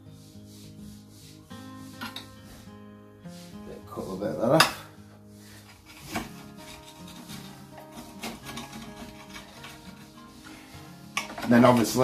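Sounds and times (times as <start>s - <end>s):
knife sawing through fish: 5.5s - 10.6s.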